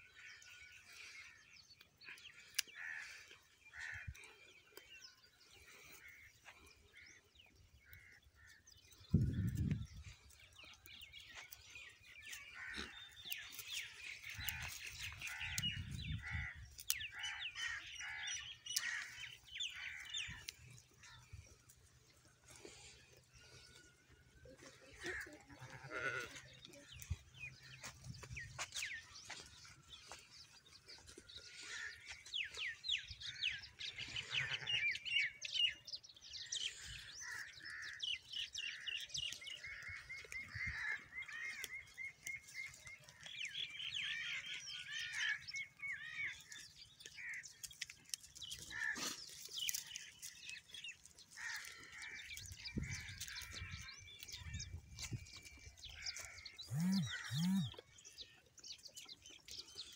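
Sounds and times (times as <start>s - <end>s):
animals cropping dry grass: 0.0s - 59.9s
small birds chirping: 0.0s - 59.9s
goat or sheep bleat: 24.6s - 27.0s, 34.2s - 35.0s.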